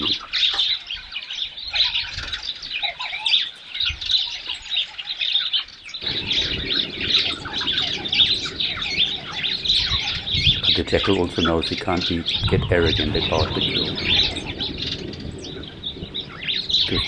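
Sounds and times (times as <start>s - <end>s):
small birds chirping: 0.0s - 17.0s
low rumbling noise: 6.0s - 17.0s.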